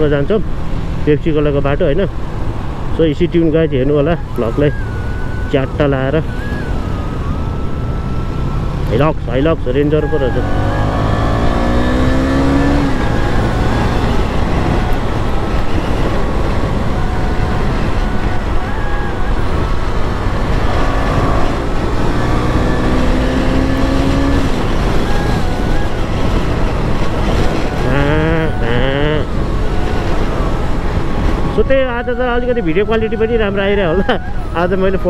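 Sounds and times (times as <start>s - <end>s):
riding wind noise: 0.0s - 35.0s
motorcycle engine accelerating: 4.2s - 31.8s.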